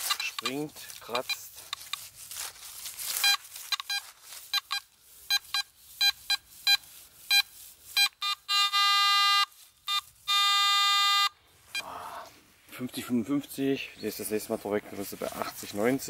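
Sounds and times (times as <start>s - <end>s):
person speaking: 0.0s - 1.9s, 11.8s - 16.0s
metal detector beeps: 0.1s - 1.5s, 3.2s - 11.9s
metal detector long tones: 3.2s - 11.9s.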